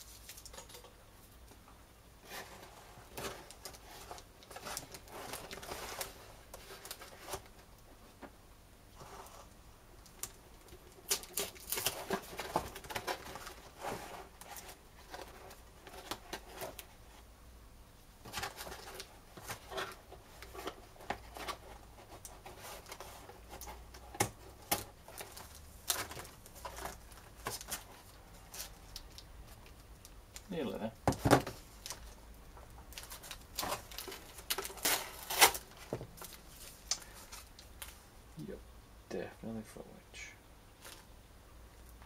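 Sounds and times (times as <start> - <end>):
plastic bags crinkling: 32.9 - 38.0.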